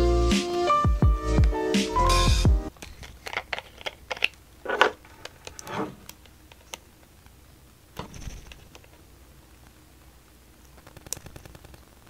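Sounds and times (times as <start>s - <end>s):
plastic cap clicks: 2.8s - 6.8s.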